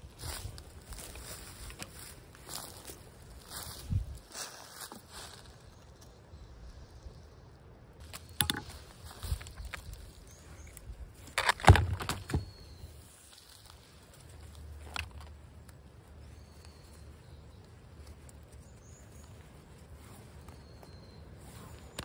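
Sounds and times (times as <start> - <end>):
cord knocking on wooden stake: 8.3 - 8.8.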